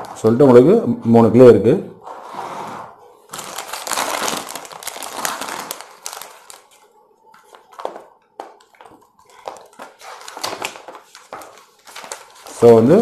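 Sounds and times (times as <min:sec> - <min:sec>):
plastic bag crinkling: 0:03.3 - 0:07.0, 0:09.3 - 0:12.6
paper booklet rustling: 0:03.3 - 0:13.0.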